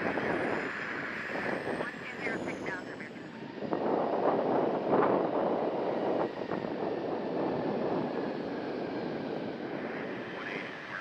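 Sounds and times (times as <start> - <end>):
jet engine rush: 0.0 - 11.0.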